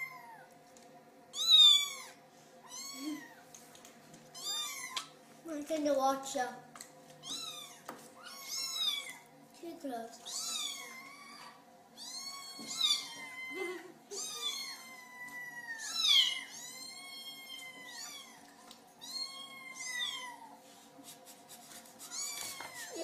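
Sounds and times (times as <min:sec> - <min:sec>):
kittens meowing: 0:01.3 - 0:03.4, 0:04.4 - 0:05.1, 0:07.2 - 0:09.2, 0:10.2 - 0:20.6.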